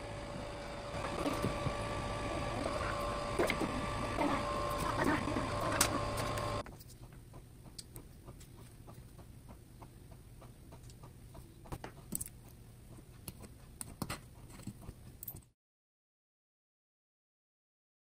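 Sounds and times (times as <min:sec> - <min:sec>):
loud steady whirring: 0:00.0 - 0:06.6.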